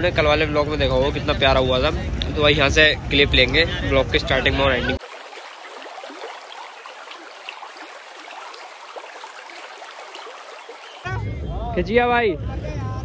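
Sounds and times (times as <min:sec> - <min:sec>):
river water lapping at bank: 0:05.0 - 0:11.1.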